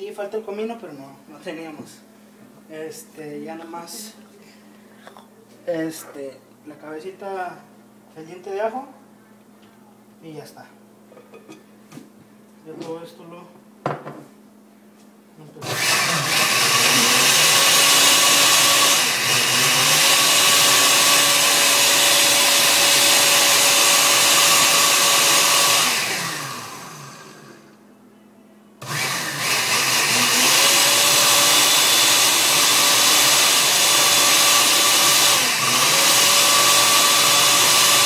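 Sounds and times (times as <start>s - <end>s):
blender motor running: 15.6s - 27.7s, 28.8s - 38.0s.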